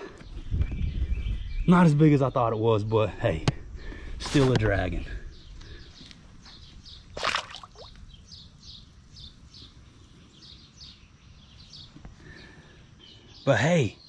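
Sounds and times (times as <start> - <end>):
small bird chirping: 5.2 - 14.0
fish splashing in water: 7.2 - 8.0.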